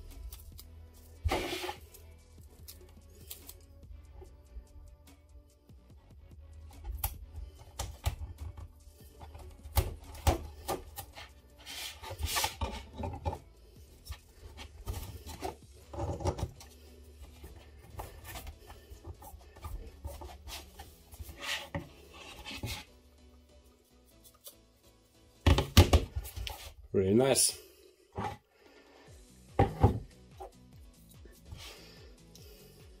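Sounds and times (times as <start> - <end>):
rubbing and scraping on plastic: 1.2 - 2.0, 6.7 - 22.9
plastic parts tapping and knocking: 14.8 - 16.6.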